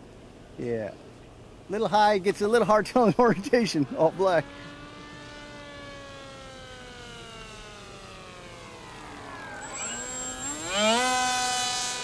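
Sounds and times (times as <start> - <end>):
electric motor and propeller whining: 3.5 - 12.0.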